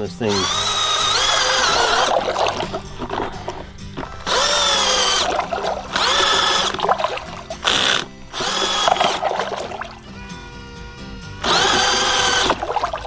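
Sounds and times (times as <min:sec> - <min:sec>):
cordless drill motor whining: 0:00.3 - 0:03.2, 0:03.9 - 0:06.8, 0:07.6 - 0:09.2, 0:10.6 - 0:12.8.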